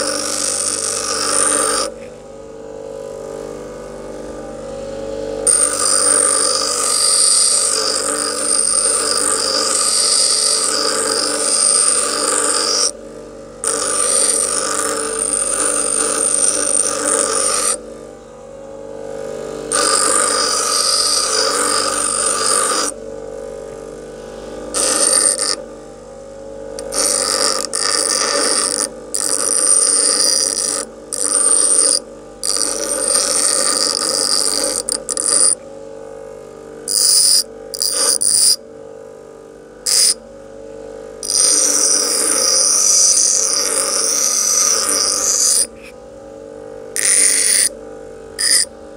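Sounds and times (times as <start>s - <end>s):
file grinding rasp: 0.0s - 2.1s, 5.4s - 13.0s, 13.6s - 17.8s, 19.7s - 23.0s, 24.7s - 25.6s, 26.8s - 35.6s, 36.9s - 38.6s, 39.9s - 40.2s, 41.2s - 46.0s, 47.0s - 47.8s, 48.4s - 48.7s
bench grinder motor hum: 0.0s - 17.9s, 19.0s - 25.8s, 26.5s - 35.6s, 36.8s - 38.6s, 39.8s - 40.2s, 41.1s - 48.9s.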